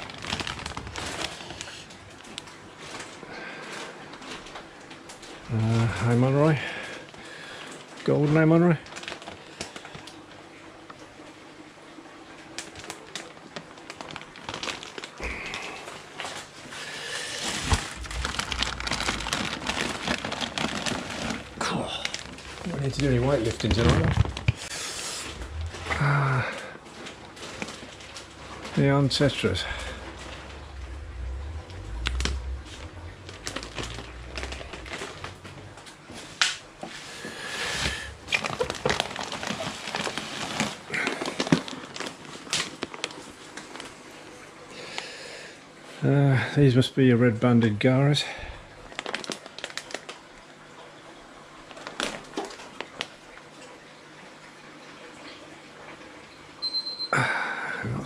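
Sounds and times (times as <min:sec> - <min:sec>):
plastic bags crinkling: 0:00.0 - 0:05.8, 0:08.3 - 0:10.2, 0:12.6 - 0:36.3, 0:37.2 - 0:44.0, 0:48.7 - 0:50.4, 0:51.7 - 0:53.2.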